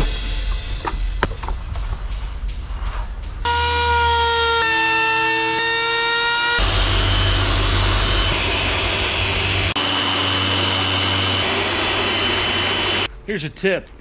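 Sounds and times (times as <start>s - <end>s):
low hum: 0.0s - 14.0s
orbital sander running: 3.5s - 13.1s
power tool motor whine: 3.5s - 13.1s.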